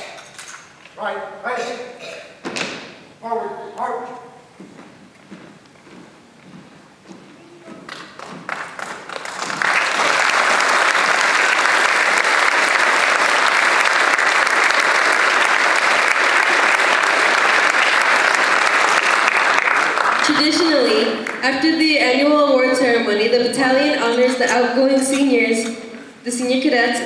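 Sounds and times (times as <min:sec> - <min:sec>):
audience applauding: 0:07.4 - 0:21.5.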